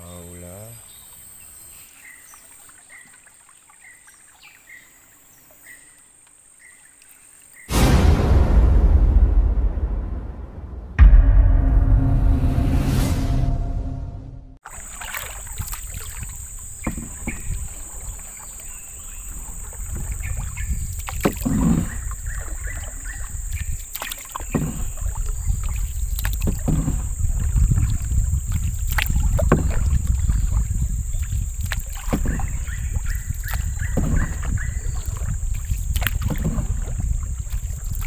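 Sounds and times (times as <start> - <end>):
water noise: 6.8 - 38.0
wind rumble on microphone: 19.1 - 38.0.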